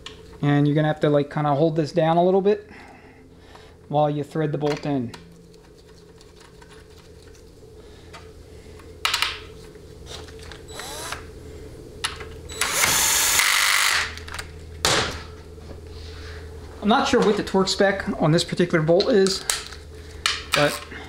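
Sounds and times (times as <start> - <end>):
small power tool spinning: 10.7 - 11.2, 12.5 - 14.2.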